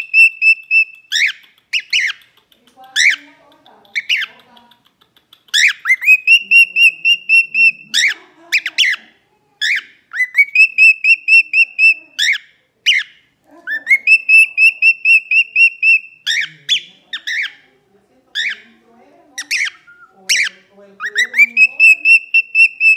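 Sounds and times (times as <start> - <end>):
cockatiel whistling song: 0.0 - 2.2, 5.6 - 9.0, 9.6 - 13.2, 13.8 - 17.6, 19.4 - 22.9.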